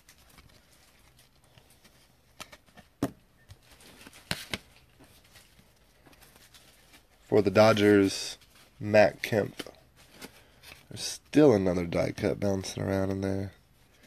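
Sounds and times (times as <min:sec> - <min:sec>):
trading cards being handled: 0:00.0 - 0:14.0.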